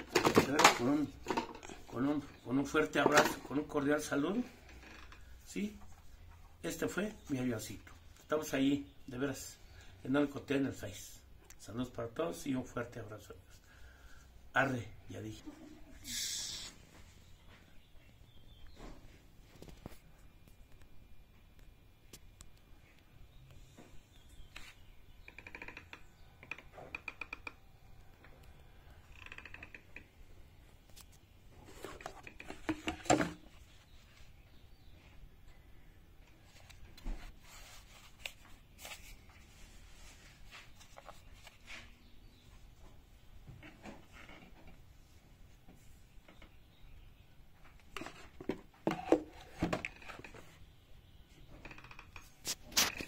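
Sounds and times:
plastic clatter and rustling: 0:00.0 - 0:01.8, 0:02.9 - 0:03.5, 0:31.6 - 0:33.8, 0:47.8 - 0:50.6
plastic parts knocking: 0:00.0 - 0:01.8, 0:31.8 - 0:33.6, 0:47.8 - 0:50.5.

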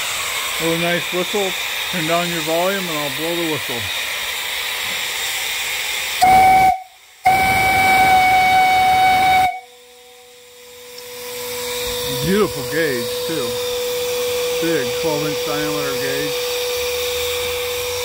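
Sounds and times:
steam hissing: 0:00.0 - 0:18.0
steam whistle blasts: 0:05.4 - 0:18.0.

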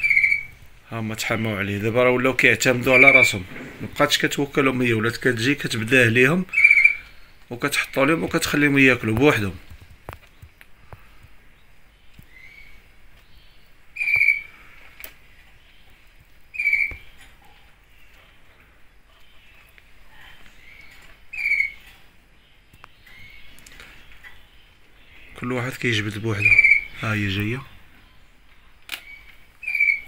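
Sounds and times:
kestrel nestlings calling: 0:00.0 - 0:09.8, 0:11.6 - 0:14.8, 0:15.5 - 0:17.3, 0:20.5 - 0:28.2, 0:29.0 - 0:30.0.

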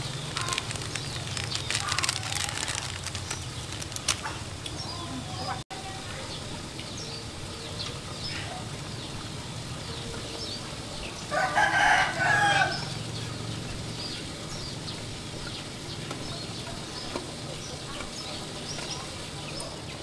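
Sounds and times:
rooster crowing: 0:11.2 - 0:13.0.

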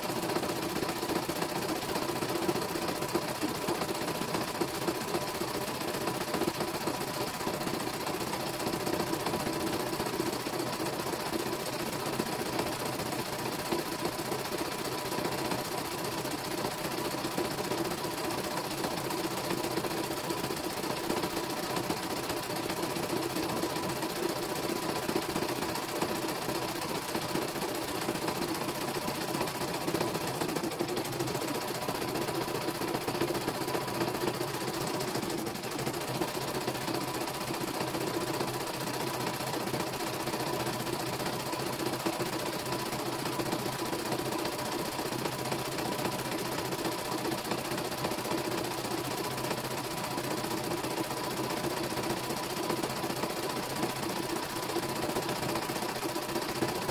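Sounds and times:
embroidery machine stitching: 0:00.0 - 0:56.9.

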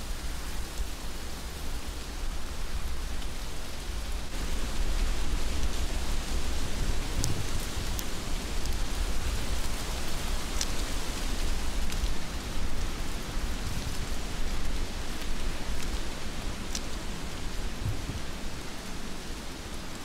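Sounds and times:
heavy rain hiss: 0:00.0 - 0:20.0
raindrops ticking close by: 0:04.7 - 0:20.0.

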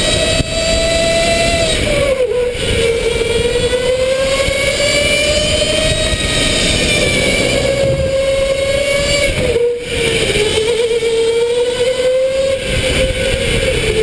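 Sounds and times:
electric motor whining: 0:03.4 - 0:09.3
steady rushing noise: 0:04.3 - 0:09.6.

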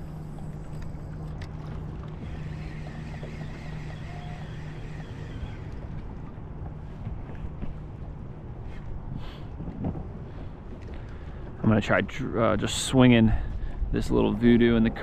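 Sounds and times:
electric motor humming: 0:00.0 - 0:07.0
water lapping against hull: 0:00.0 - 0:12.0
wind: 0:00.0 - 0:15.0.

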